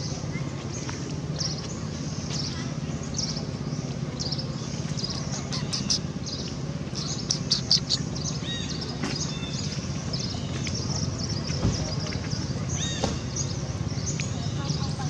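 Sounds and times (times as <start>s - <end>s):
small birds chirping: 0.0s - 15.0s
steady low hum: 0.0s - 15.0s.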